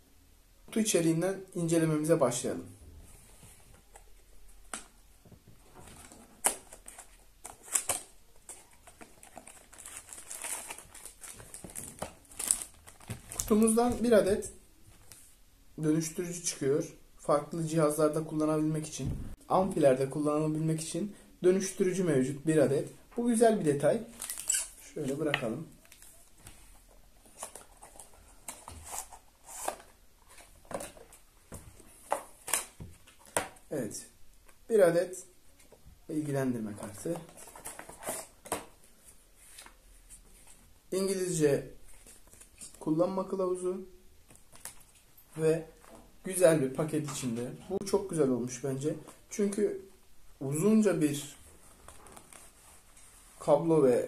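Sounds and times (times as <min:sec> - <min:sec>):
paper and packaging rustling: 0:05.6 - 0:15.2, 0:24.1 - 0:33.6, 0:36.8 - 0:40.6.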